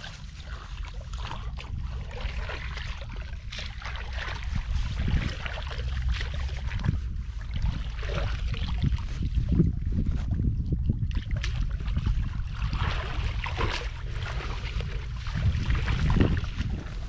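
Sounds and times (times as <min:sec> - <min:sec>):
shallow water sloshing: 0:00.0 - 0:17.0
steady low rumble: 0:00.0 - 0:17.0.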